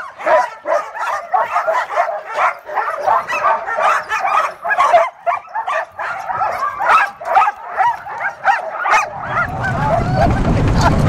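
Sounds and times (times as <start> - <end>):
sled dogs barking and yelping: 0.0 - 11.0
low rumble: 9.1 - 11.0.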